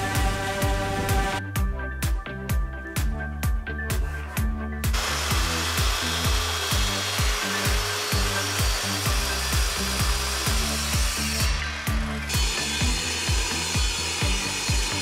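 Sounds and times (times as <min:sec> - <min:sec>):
background music with steady beat: 0:00.0 - 0:15.0
circular saw cutting plywood: 0:04.9 - 0:15.0.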